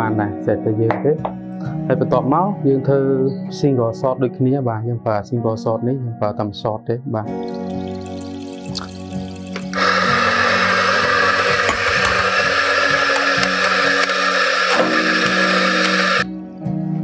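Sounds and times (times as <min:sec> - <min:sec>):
soft background music: 0:00.0 - 0:17.0
electric coffee grinder running: 0:09.5 - 0:16.3.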